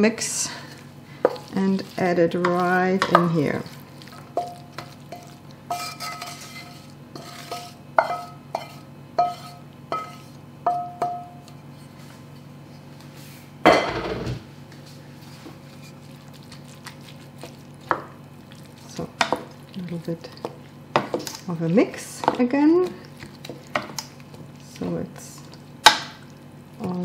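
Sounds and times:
spatula clinking on metal pan: 8.0 - 11.4.

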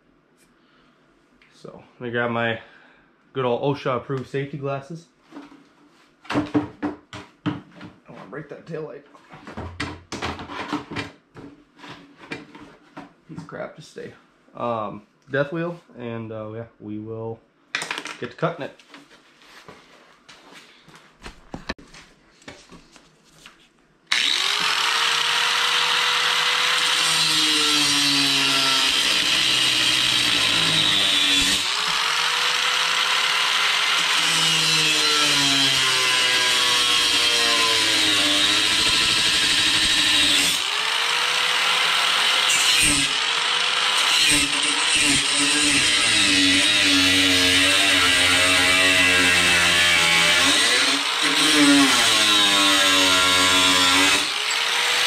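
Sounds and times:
angle grinder cutting metal: 24.1 - 55.0.

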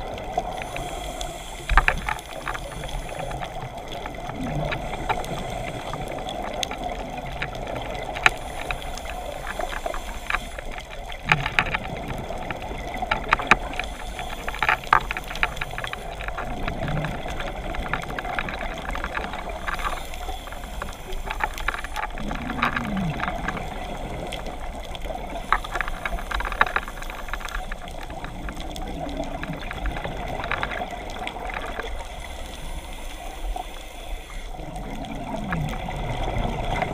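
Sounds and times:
steady hiss: 0.0 - 36.9
diver exhaling bubbles: 22.1 - 24.3.

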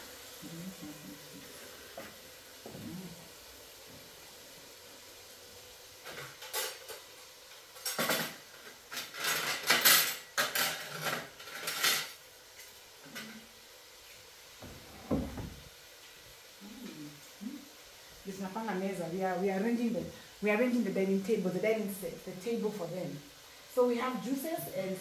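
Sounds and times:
tableware clinking: 9.0 - 12.2
dull knock: 14.6 - 15.6.

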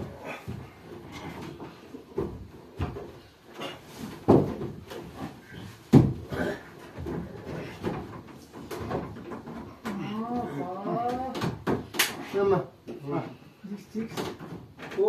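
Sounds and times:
wooden frame knocking: 4.2 - 5.0.

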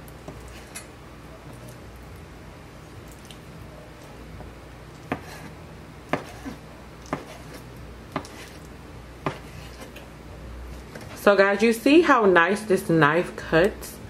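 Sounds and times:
knife chopping on cutting board: 5.1 - 5.5, 6.1 - 8.6, 9.2 - 9.9.

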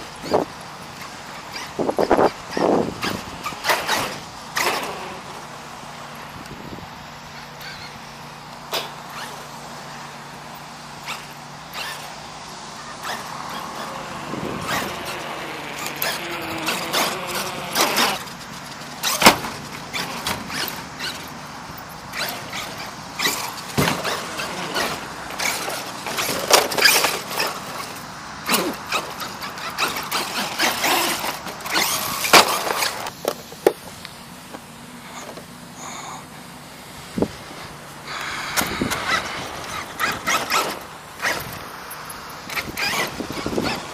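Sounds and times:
toy truck banging on ramps: 1.6 - 5.2, 14.6 - 21.3, 22.2 - 33.8
electric motor whining: 11.0 - 19.3, 22.1 - 27.6, 38.0 - 41.7.

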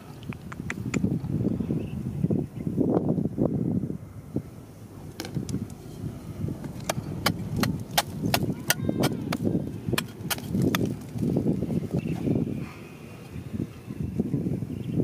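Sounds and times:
rustling and scraping of rock: 5.1 - 12.4
digging bar striking rock: 6.6 - 11.4.

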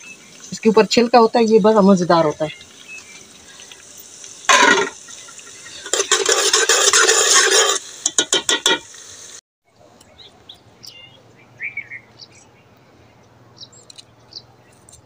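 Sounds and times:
onions frying in oil: 0.0 - 9.4
ladle scraping pot: 5.8 - 8.8
faint bird chirps: 9.9 - 15.0.

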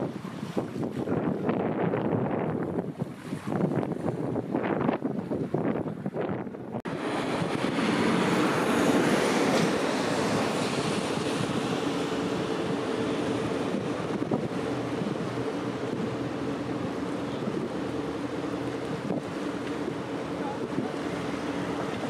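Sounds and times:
wind and water rushing: 0.0 - 22.0
ship engine drone: 6.7 - 22.0.

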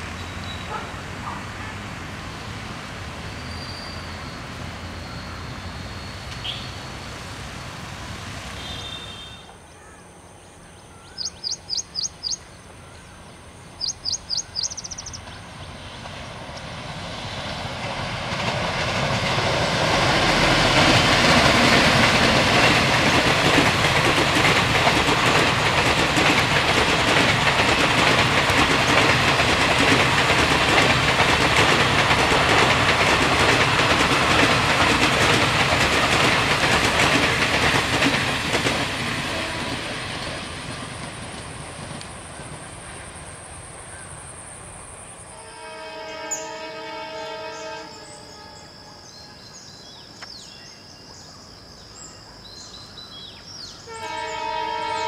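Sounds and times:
train wheels on rails: 0.0 - 9.7, 11.1 - 50.7
high bird chirps: 10.8 - 13.0, 13.8 - 15.4.

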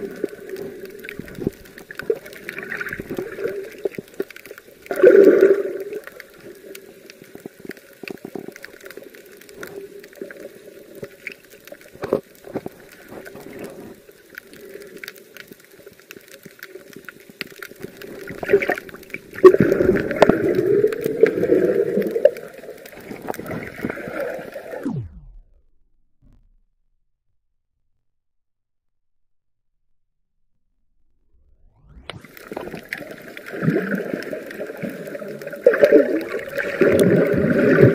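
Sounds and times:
water gurgling and sloshing: 0.0 - 15.4, 17.2 - 26.6, 31.6 - 37.9
small clicks: 0.0 - 25.5.

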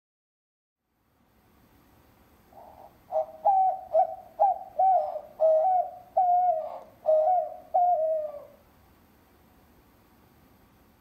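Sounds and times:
dove cooing: 2.5 - 8.6.

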